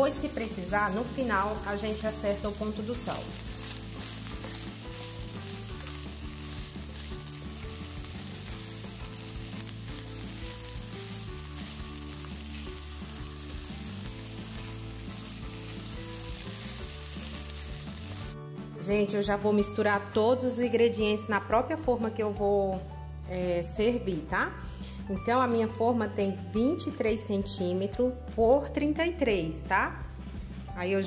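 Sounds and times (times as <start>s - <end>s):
chicken sizzling in a frying pan: 0.0s - 18.4s
spatula stirring food in pan: 0.4s - 18.4s.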